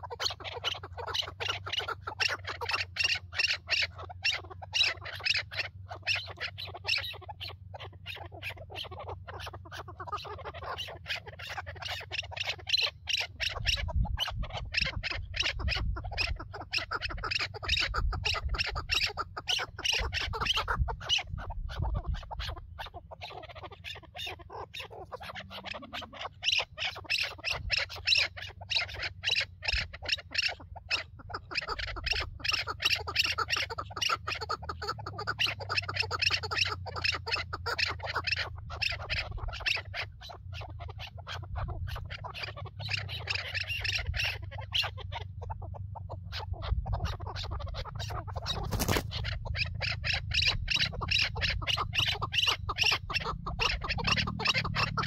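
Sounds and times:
partridges clucking: 47.4s - 55.0s.

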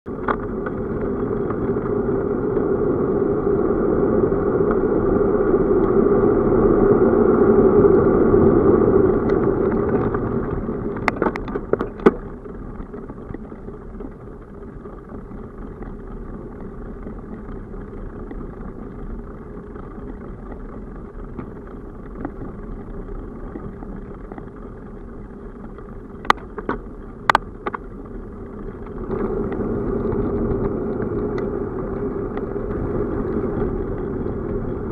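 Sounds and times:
tyres on asphalt: 0.0s - 34.9s
sharp clicks and rattles: 9.1s - 34.9s.

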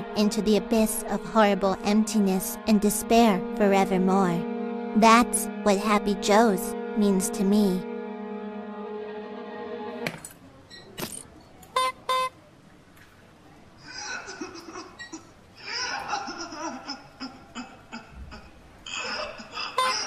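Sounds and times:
squeeze-bulb horn honks: 11.7s - 12.3s
cartoon character laughing: 13.9s - 20.0s.

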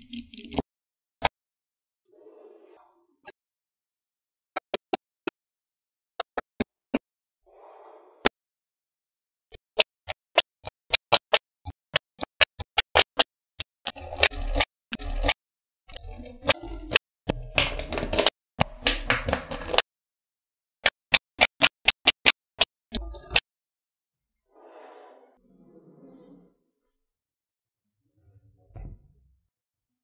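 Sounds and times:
magnetic balls clicking: 0.0s - 0.6s, 9.5s - 19.9s, 20.8s - 23.4s
magnetic balls rattling: 13.8s - 19.8s.

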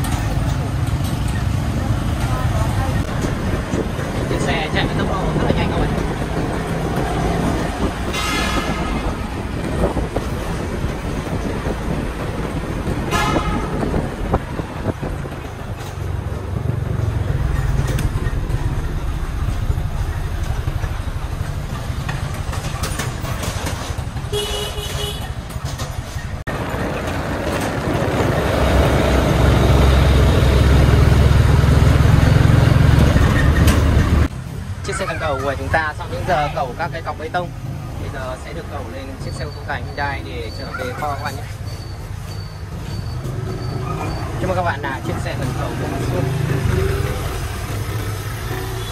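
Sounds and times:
vehicle horn toots: 8.1s - 9.2s, 13.1s - 14.0s, 24.3s - 25.3s
truck engine running: 13.9s - 24.5s.

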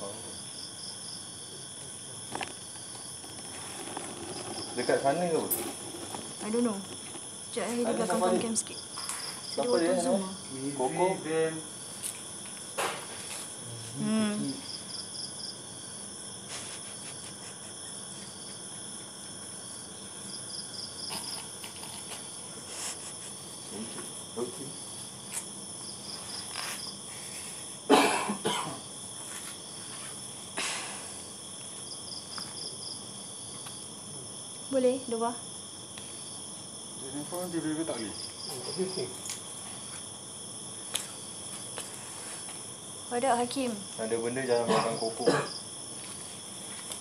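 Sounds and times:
insects chirping: 0.0s - 47.0s
person coughing: 27.9s - 28.8s, 44.7s - 45.6s.

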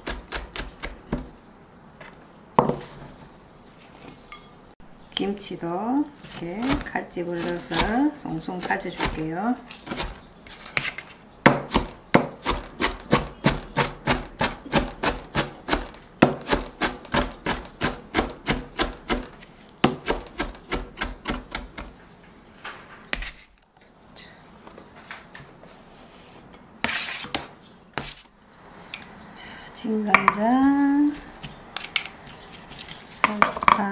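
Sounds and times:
knife chopping on plastic board: 6.3s - 10.2s, 10.8s - 21.9s.

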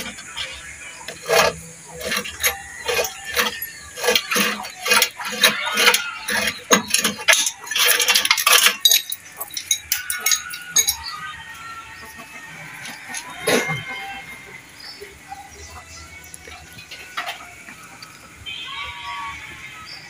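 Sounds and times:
metal tool clinking and scraping: 0.0s - 11.4s.

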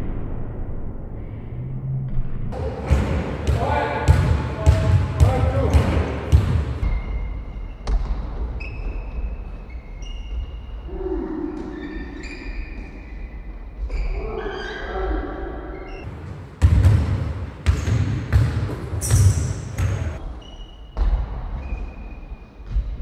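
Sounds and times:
basketball bouncing on floor: 2.6s - 7.0s, 16.1s - 20.2s
shoes squeaking on floor: 8.6s - 10.7s, 18.9s - 21.0s.

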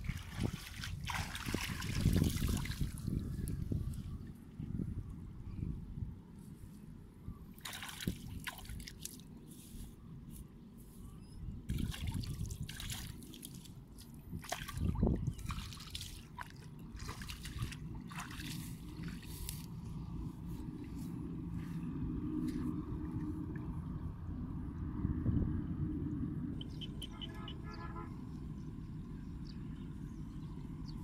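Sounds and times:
loud splash: 0.0s - 3.0s, 7.6s - 8.8s
water trickling and splashing: 0.0s - 4.6s, 7.6s - 9.8s, 11.7s - 24.1s.

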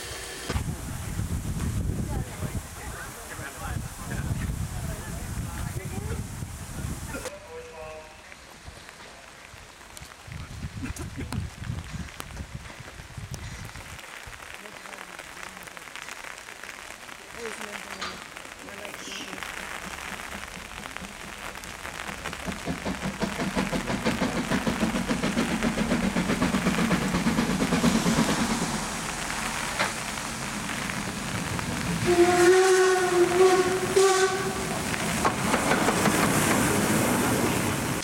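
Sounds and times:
steam locomotive chuffing: 0.0s - 0.8s, 19.6s - 38.0s
steam hissing: 0.0s - 7.2s, 17.4s - 38.0s
steam whistle blast: 32.0s - 34.8s.

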